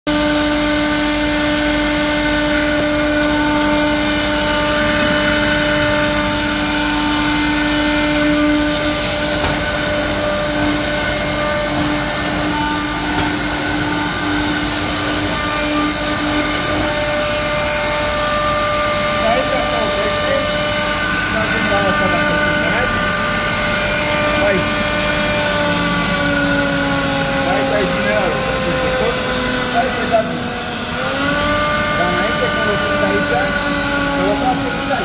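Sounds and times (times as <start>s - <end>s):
router spindle motor whine: 0.1s - 35.0s.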